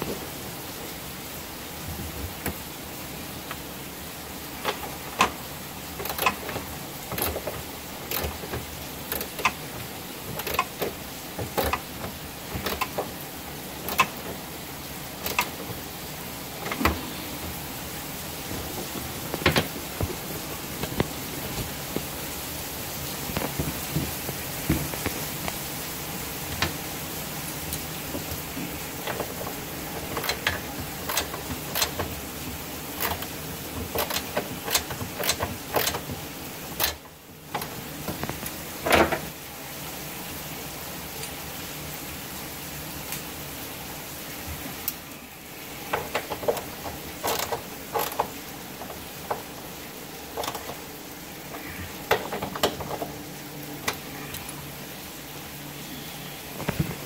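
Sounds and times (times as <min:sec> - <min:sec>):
steady hiss: 0:00.0 - 0:57.0
hand tools clicking and knocking: 0:04.6 - 0:17.7, 0:18.5 - 0:20.2, 0:28.1 - 0:39.3, 0:45.8 - 0:49.7, 0:50.3 - 0:54.4.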